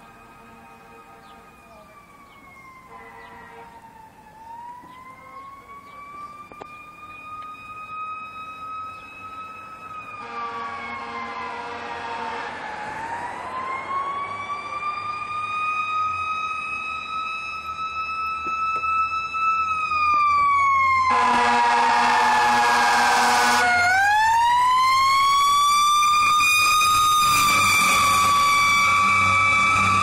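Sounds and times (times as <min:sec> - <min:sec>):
siren wailing: 0:00.0 - 0:30.0
air horn blasts: 0:02.9 - 0:03.8, 0:10.2 - 0:12.6, 0:21.0 - 0:23.8.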